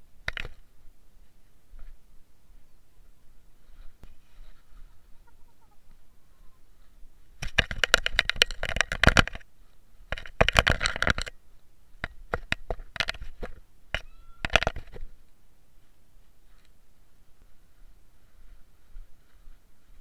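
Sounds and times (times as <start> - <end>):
handling noise on camera: 0.2 - 0.7, 7.4 - 11.4, 12.0 - 15.2.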